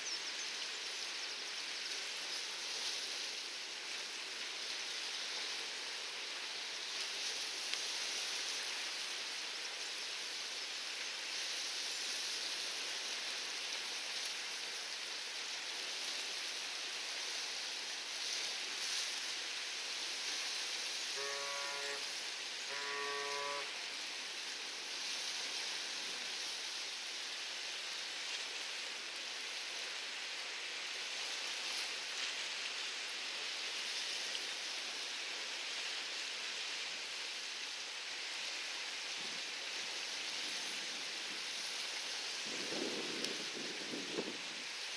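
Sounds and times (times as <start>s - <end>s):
rain hissing: 0.0s - 44.9s
short horn-like tones: 21.0s - 24.0s.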